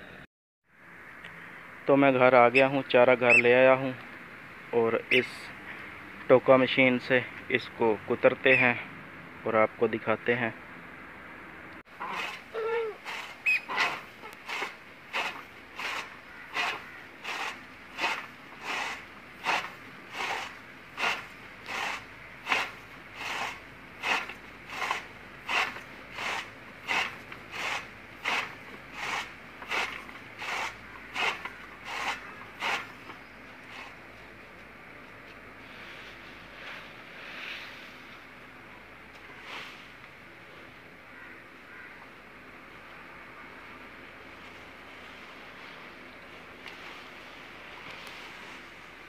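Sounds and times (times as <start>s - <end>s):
chaff cutter chopping stalks: 12.0s - 34.0s.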